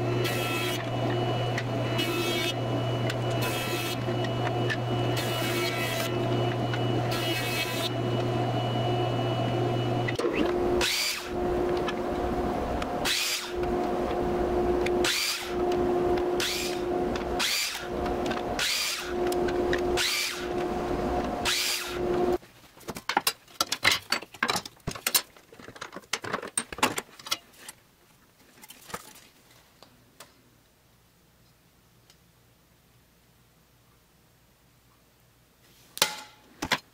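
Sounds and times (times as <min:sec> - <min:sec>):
jointer-planer humming: 0:00.0 - 0:22.4
miter saw cutting wood: 0:00.0 - 0:22.4.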